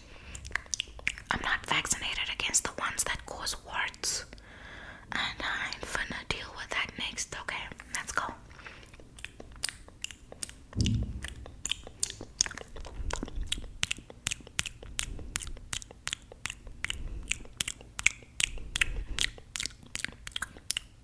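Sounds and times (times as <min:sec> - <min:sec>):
wet finger-sucking and licking: 0:00.3 - 0:01.8, 0:08.9 - 0:21.0
soft low thump: 0:10.8 - 0:11.8.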